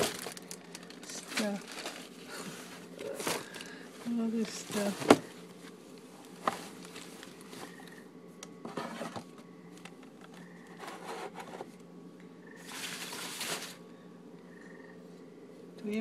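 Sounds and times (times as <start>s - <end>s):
tubs scraping and rustling: 0.0s - 7.9s, 8.6s - 9.4s, 10.7s - 11.8s, 12.6s - 13.8s
steady low hum: 0.0s - 16.0s.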